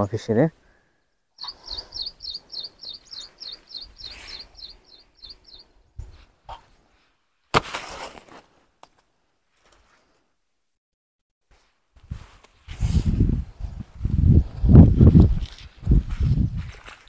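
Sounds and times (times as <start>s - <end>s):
bird chirping high note: 1.4s - 5.6s
rustling noise: 11.4s - 17.0s.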